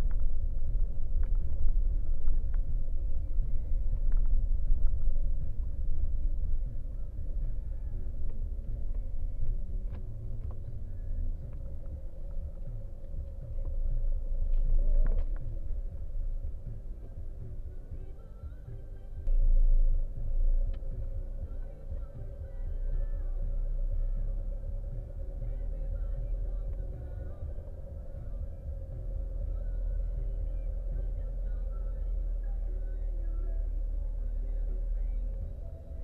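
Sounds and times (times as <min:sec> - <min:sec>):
car engine and road rumble: 0:00.0 - 0:36.0.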